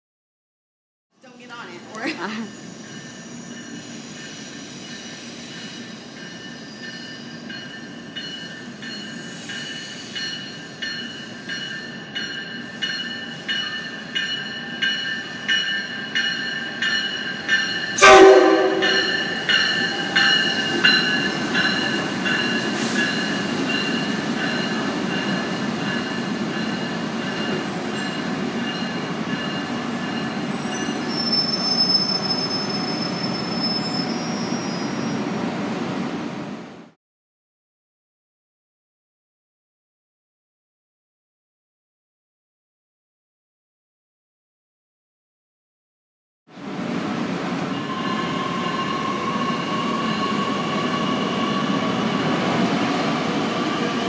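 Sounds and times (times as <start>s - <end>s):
train cars rumbling: 1.3s - 36.8s, 46.6s - 54.0s
train bell ringing: 1.4s - 35.1s, 47.7s - 54.0s
high brake squeal: 2.4s - 8.1s, 9.0s - 11.1s, 29.3s - 35.2s, 47.8s - 52.3s
train horn blast: 18.0s - 19.3s.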